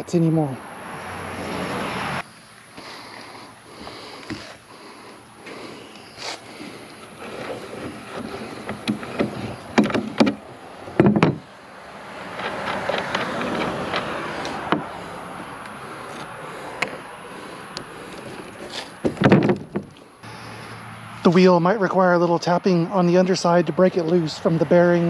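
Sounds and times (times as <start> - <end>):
nut scraping on axle: 3.8 - 20.7
clatter of knocks: 8.2 - 10.4, 11.0 - 11.5, 19.0 - 20.0.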